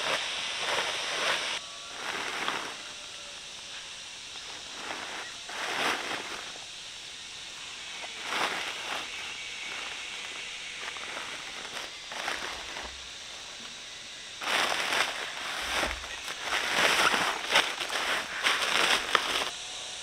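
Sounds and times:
rustling in vegetation: 0.0 - 19.6
steady outdoor hiss: 0.0 - 20.0
short scuffing bursts: 14.4 - 19.5.

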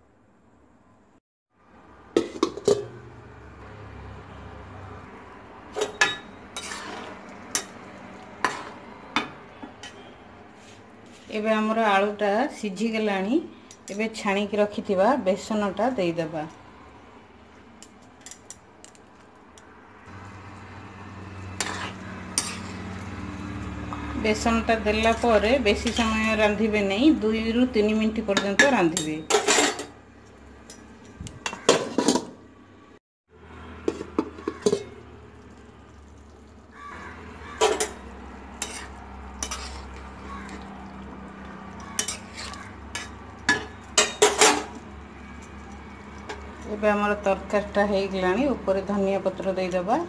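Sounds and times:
spoon stirring thick curry: 5.7 - 11.4, 21.2 - 24.4, 33.8 - 46.8
spoon clinking against metal pan: 41.8 - 44.7.

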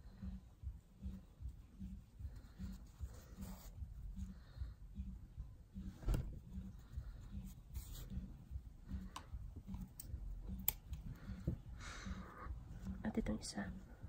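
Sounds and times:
faint background music: 0.0 - 14.0
yarn handling noises: 5.0 - 14.0
needle light clicks: 9.1 - 11.0.

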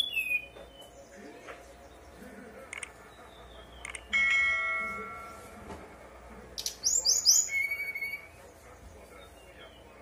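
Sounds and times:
bird singing flute-like whistles: 0.0 - 0.9, 6.6 - 8.3.

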